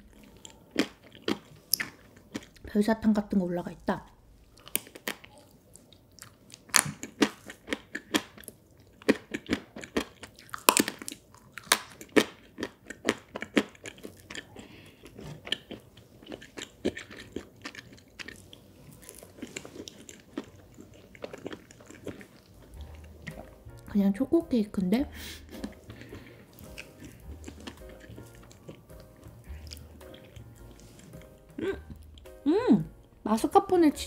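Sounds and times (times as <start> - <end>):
person chewing cake: 0.0 - 2.7, 4.1 - 23.9, 25.0 - 33.2
candy sprinkles crunching: 6.2 - 32.4.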